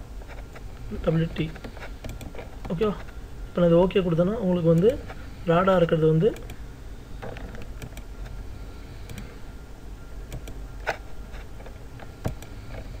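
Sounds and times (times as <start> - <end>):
background hum and hiss: 0.0 - 13.0
mouse and keyboard clicks: 1.6 - 2.8, 7.2 - 8.1, 10.3 - 11.0.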